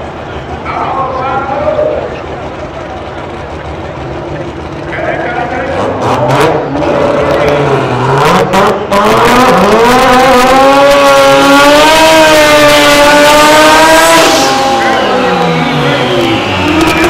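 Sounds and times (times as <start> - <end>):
engine revving high: 4.9 - 17.0.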